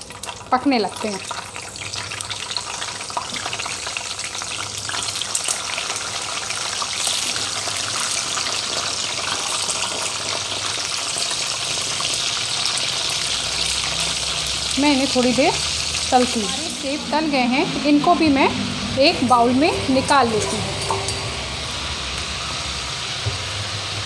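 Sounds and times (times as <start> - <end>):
apple pieces sizzling in oil: 0.0 - 18.0.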